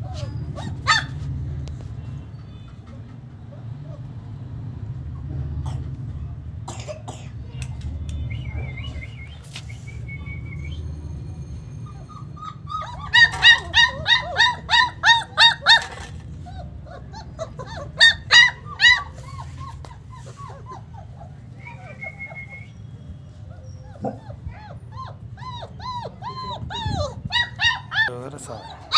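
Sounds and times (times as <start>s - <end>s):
puppy yelping: 0.0s - 1.4s, 11.3s - 28.9s.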